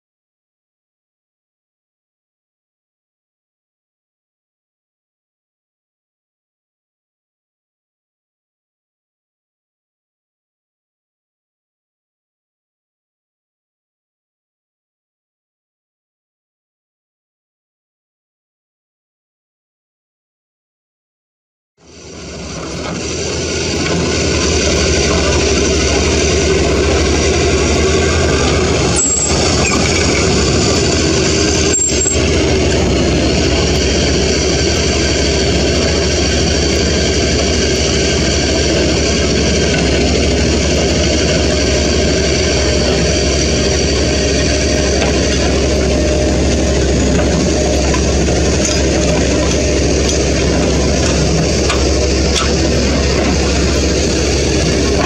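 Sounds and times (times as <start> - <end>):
diesel truck engines running: 21.8 - 55.0.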